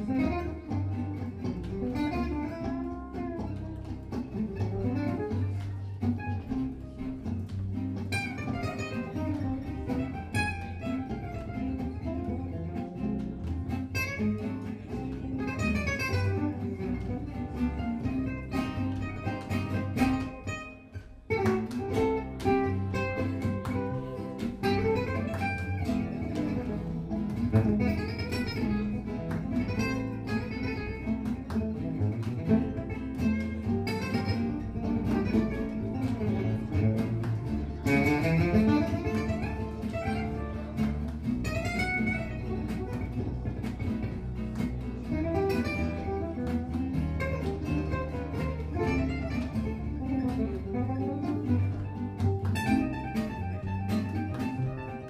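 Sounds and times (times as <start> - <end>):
double bass: 0.0 - 55.0
lead acoustic guitar runs: 0.0 - 55.0
rhythm guitar chords: 0.0 - 55.0
violin: 0.0 - 55.0.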